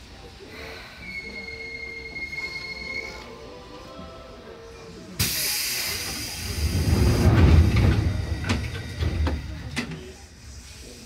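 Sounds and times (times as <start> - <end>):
electric train rumble: 5.2 - 11.0.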